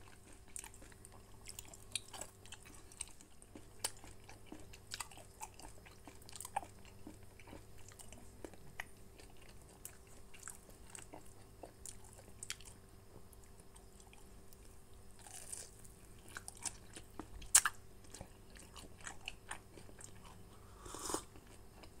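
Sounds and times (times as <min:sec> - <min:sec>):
person chewing: 0:00.0 - 0:12.8, 0:15.2 - 0:22.0
wet mouth clicks: 0:20.8 - 0:21.3.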